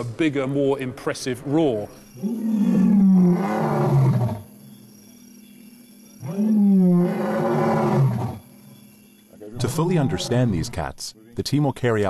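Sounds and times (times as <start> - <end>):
lion roaring: 2.2 - 4.4, 6.2 - 8.5, 9.6 - 10.8.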